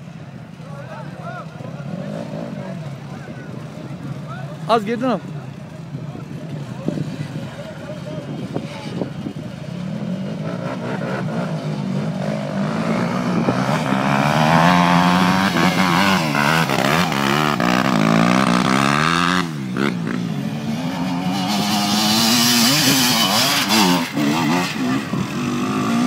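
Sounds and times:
dirt bike engine revving: 1.8 - 3.0, 8.5 - 26.0.

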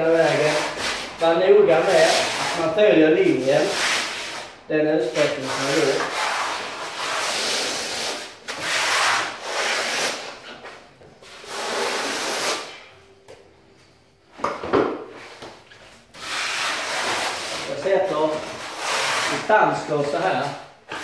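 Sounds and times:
trowel scraping on concrete floor: 15.7 - 21.0.

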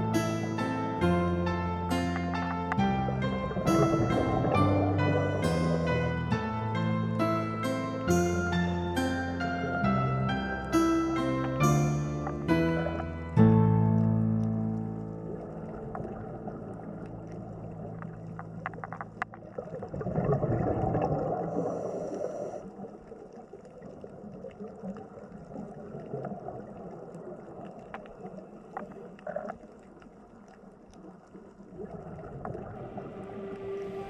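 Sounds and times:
water splashing and gurgling: 2.0 - 7.0, 9.4 - 34.0
small clicks and drips: 13.9 - 32.8.

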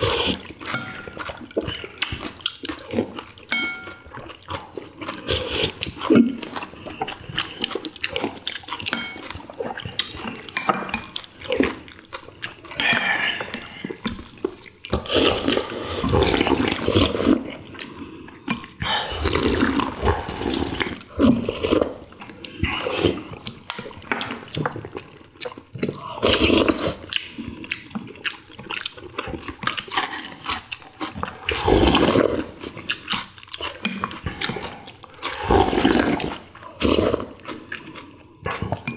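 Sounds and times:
slurping broth: 0.0 - 3.2, 12.4 - 23.5, 25.8 - 27.5, 29.4 - 38.8
people chewing: 0.0 - 38.9
utensils clicking on ceramic bowls: 8.8 - 9.4.

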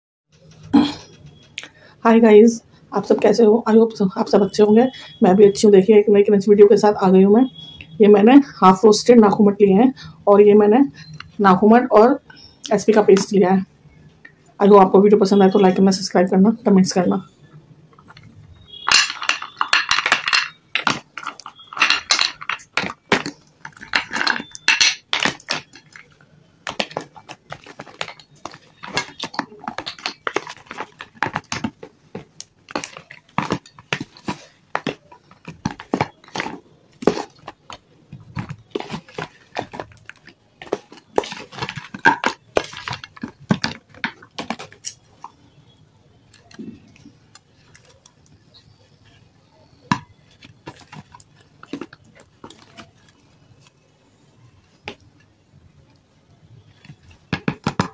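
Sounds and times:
metal spoon scraping plastic tub: 18.0 - 26.1, 26.7 - 45.0.

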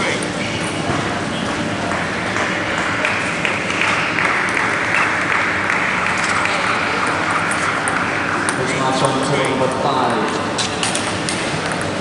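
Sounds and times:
spectators applauding: 1.8 - 8.3.

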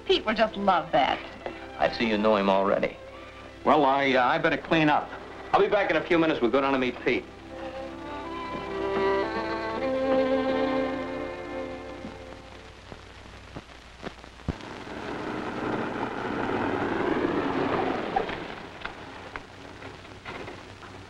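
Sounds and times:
sharp clicks and pops: 11.9 - 21.0
car engine and tyres on dirt: 15.0 - 21.0.

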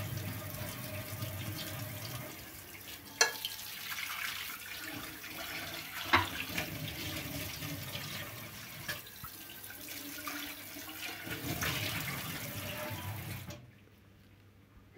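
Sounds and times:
tap water splashing onto pan: 3.1 - 4.4, 5.4 - 7.3, 7.9 - 9.4.

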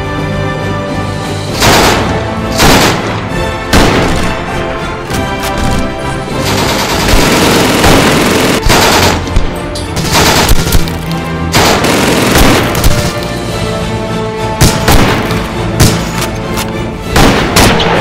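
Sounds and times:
background music: 0.0 - 18.0
machine-gun and rifle fire: 1.6 - 3.1, 3.7 - 4.4, 6.3 - 9.4, 10.0 - 10.9, 11.5 - 13.2, 14.6 - 16.0, 17.2 - 18.0.

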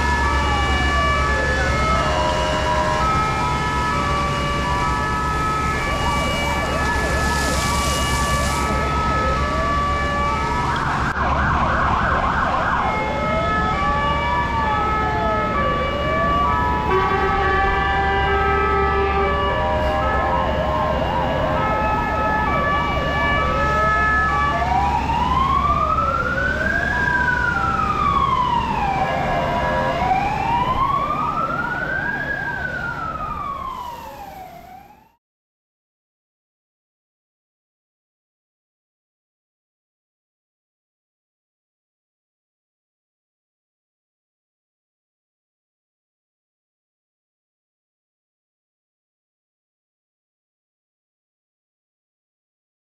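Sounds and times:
fire engine sirens: 0.0 - 35.2.

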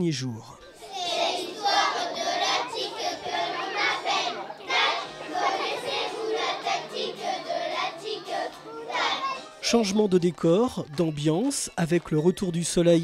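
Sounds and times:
children's voices: 0.6 - 9.6.

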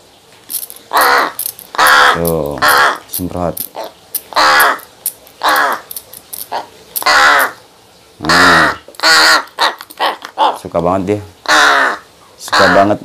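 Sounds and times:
young crow harsh cawing: 0.9 - 3.1, 3.8 - 5.9, 6.5 - 7.6, 8.2 - 10.6, 11.4 - 13.0.

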